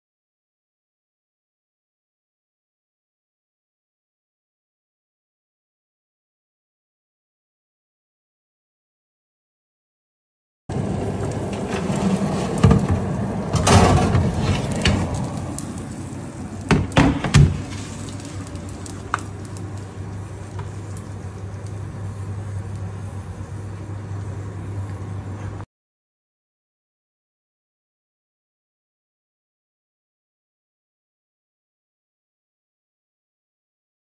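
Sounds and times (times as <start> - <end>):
steady low hum: 10.7 - 25.6.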